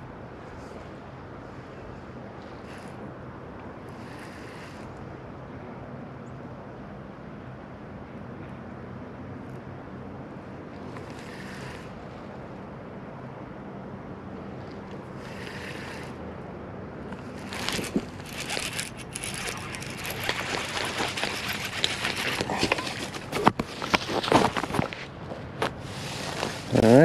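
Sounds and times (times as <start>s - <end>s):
hand rubbing camera: 17.1s - 27.0s.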